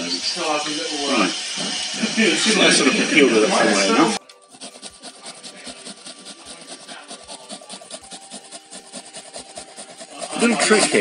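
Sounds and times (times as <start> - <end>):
onion rasping on grater: 3.6 - 11.0.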